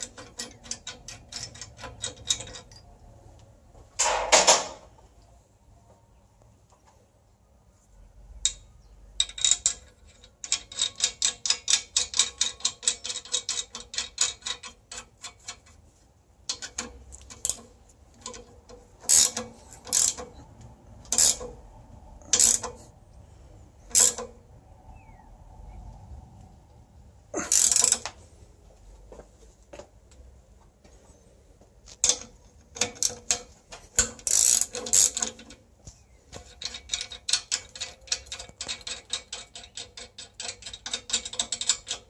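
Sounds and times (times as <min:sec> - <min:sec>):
ratchet spanner clicking: 0:00.0 - 0:02.9, 0:08.4 - 0:15.8, 0:16.4 - 0:20.4, 0:21.0 - 0:21.6, 0:22.2 - 0:22.8, 0:23.9 - 0:24.4, 0:27.5 - 0:28.2, 0:31.9 - 0:35.6, 0:36.4 - 0:42.0.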